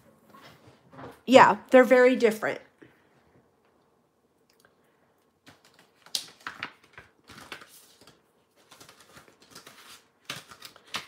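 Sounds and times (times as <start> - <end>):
plastic packaging crinkling: 5.4 - 11.0.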